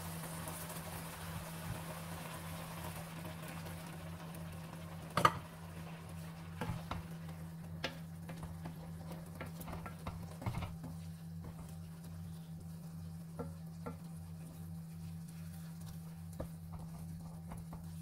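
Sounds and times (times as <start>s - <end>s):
light sizzle: 0.0s - 18.0s
wooden spatula scraping pan: 8.3s - 12.4s.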